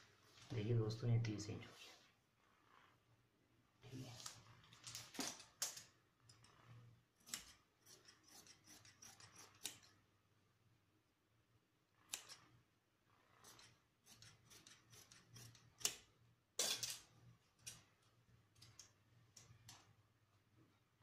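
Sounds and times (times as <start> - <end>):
scissors snipping cloth: 7.2 - 10.0, 13.4 - 16.1.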